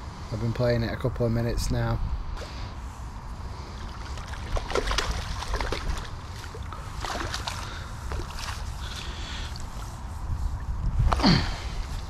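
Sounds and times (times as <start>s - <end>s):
fish splashing in water: 3.8s - 9.8s.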